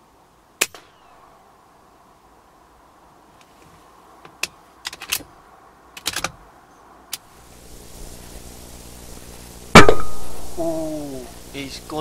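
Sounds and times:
low steady hum: 0:06.7 - 0:12.0.

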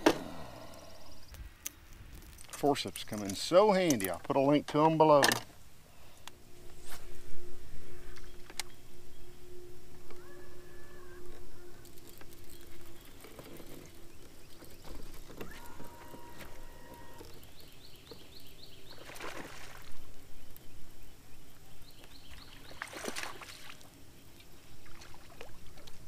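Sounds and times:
rushing splashes: 0:19.0 - 0:20.0
water lapping against boat hull: 0:24.7 - 0:26.0.

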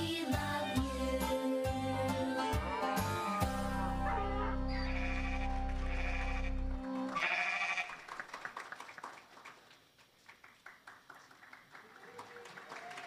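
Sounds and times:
musical accompaniment: 0:00.0 - 0:07.2
light clapping: 0:07.9 - 0:13.0.

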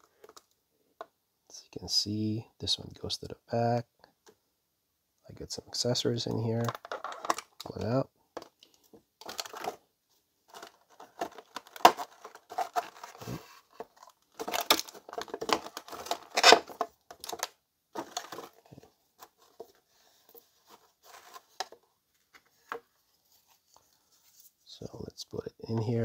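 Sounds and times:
plastic packaging crinkling: 0:08.6 - 0:09.8, 0:10.5 - 0:19.4.

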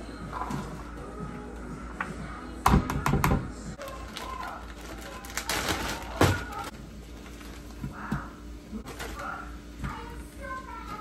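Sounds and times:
plastic bag crinkling: 0:03.8 - 0:07.8, 0:08.8 - 0:09.5.

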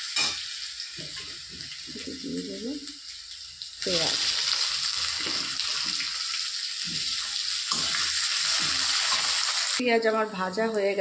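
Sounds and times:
onions sizzling in hot oil: 0:00.0 - 0:11.0
metal spatula stirring: 0:06.8 - 0:09.5.

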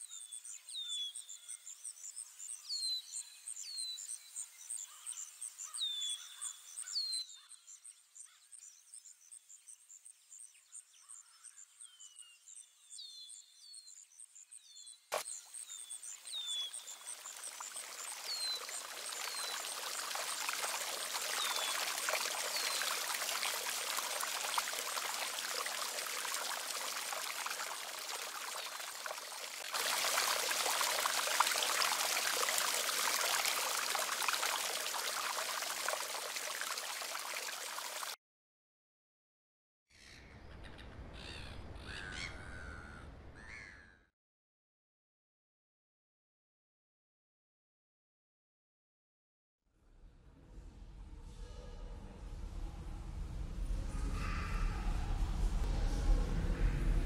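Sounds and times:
fountain water splashing: 0:15.1 - 0:38.2.

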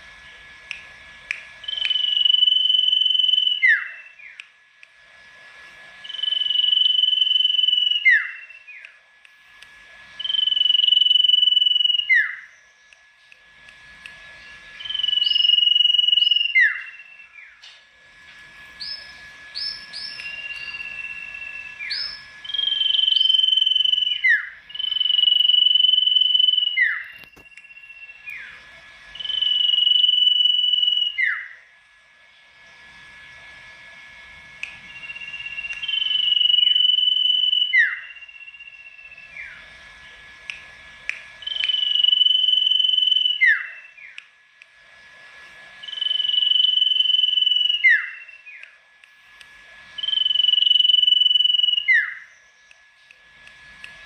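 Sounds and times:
songbird singing whistled phrases: 0:01.6 - 0:04.5, 0:06.0 - 0:09.0, 0:10.2 - 0:13.0, 0:14.4 - 0:17.7, 0:18.8 - 0:28.6, 0:29.2 - 0:31.6, 0:34.9 - 0:39.6, 0:41.4 - 0:44.3, 0:45.8 - 0:48.8, 0:50.0 - 0:52.8.

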